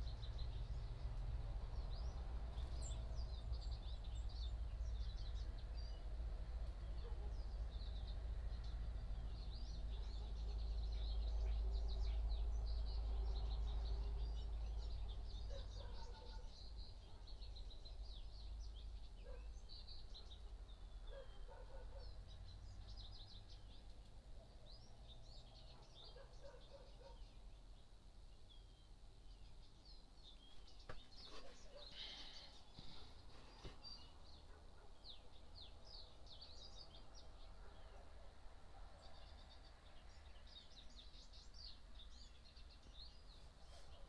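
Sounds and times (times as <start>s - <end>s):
birds chirping: 0.0s - 44.0s.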